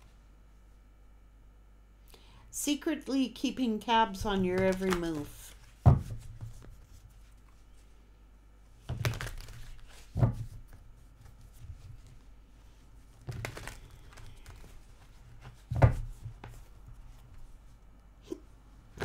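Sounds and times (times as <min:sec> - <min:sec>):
cards shuffling: 0:04.2 - 0:07.8, 0:08.8 - 0:12.2, 0:13.1 - 0:17.2
dull thump: 0:05.8 - 0:06.5.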